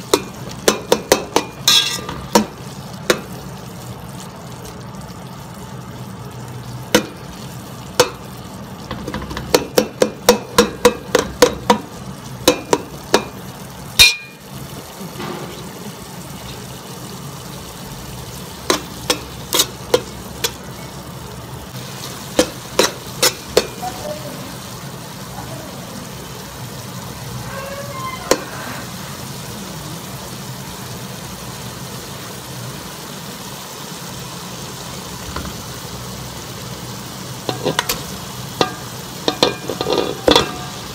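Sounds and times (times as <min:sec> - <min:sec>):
onions sizzling in oil: 0:00.0 - 0:40.9
metal spoon scraping a pot: 0:01.4 - 0:02.2, 0:39.3 - 0:40.9.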